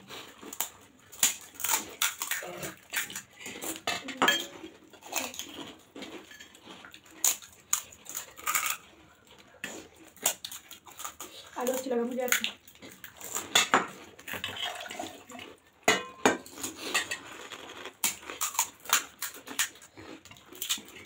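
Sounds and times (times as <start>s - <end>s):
eating sounds: 0.0s - 15.8s, 16.4s - 21.0s
crisp shells cracking: 0.5s - 3.8s, 16.5s - 21.0s.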